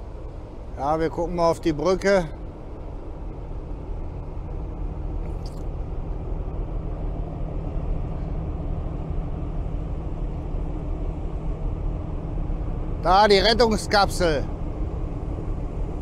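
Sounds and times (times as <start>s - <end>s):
ship engine rumble: 0.0s - 16.0s.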